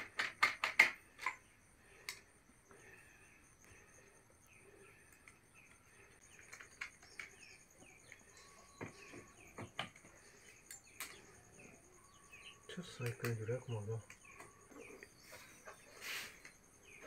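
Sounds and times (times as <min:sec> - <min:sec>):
metal and plastic parts clicking: 0:00.0 - 0:01.4, 0:05.1 - 0:08.5
high insect trill: 0:00.9 - 0:17.0
small birds chirping: 0:01.0 - 0:17.0.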